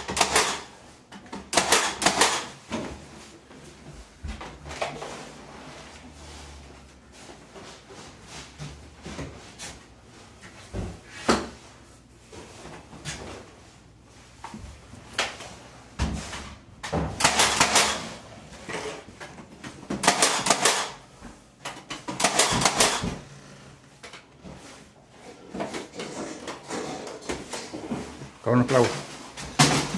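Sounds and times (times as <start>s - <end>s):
nail gun bangs: 0.0s - 0.7s, 1.5s - 2.5s, 17.2s - 18.1s, 20.0s - 21.0s, 22.1s - 23.2s.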